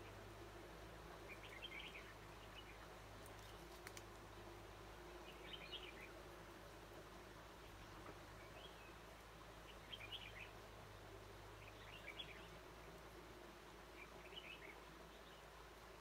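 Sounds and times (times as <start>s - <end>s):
bird chirping: 1.1s - 4.5s, 5.2s - 6.3s, 7.6s - 9.0s, 9.6s - 10.6s, 11.6s - 13.0s, 13.9s - 15.6s.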